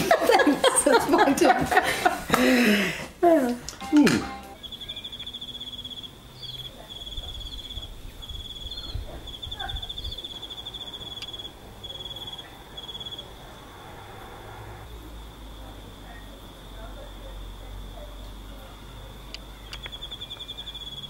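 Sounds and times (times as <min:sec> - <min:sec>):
insect trilling: 0:04.6 - 0:15.5, 0:19.4 - 0:21.0.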